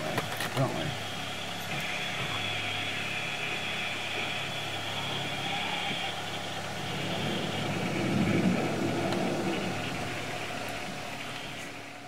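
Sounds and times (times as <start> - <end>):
mechanical cabin hum: 0.0 - 12.0
high hiss: 0.8 - 11.6.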